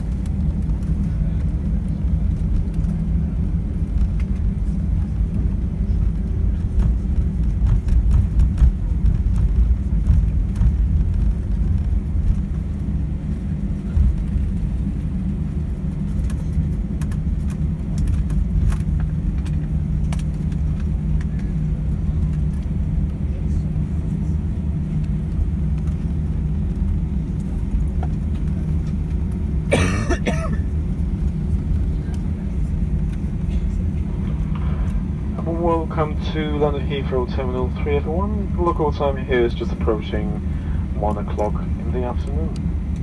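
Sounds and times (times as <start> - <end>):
wheels rumbling on runway: 0.0 - 43.0
sharp clicks and rattles: 16.1 - 21.4.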